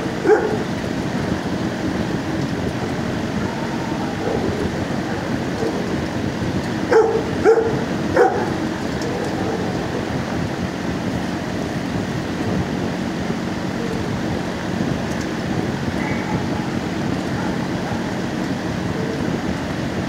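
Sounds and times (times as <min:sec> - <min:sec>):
steady background noise: 0:00.0 - 0:20.0
dog barks: 0:00.2 - 0:00.7, 0:06.9 - 0:09.9, 0:16.0 - 0:16.8.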